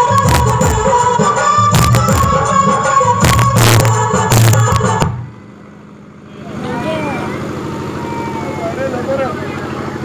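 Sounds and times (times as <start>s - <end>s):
dance music with heavy beat: 0.0s - 5.1s.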